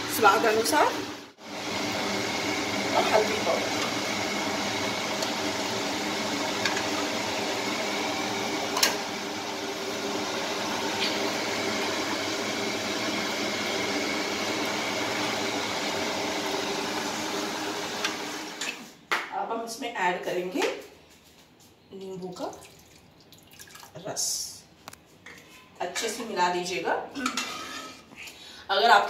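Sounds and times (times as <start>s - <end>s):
kitchen exhaust fan humming: 0.0s - 19.6s.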